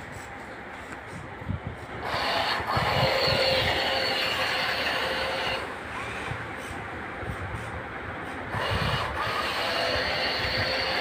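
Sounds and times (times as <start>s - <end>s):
electric gear motors whining: 2.0s - 6.8s, 8.5s - 11.0s.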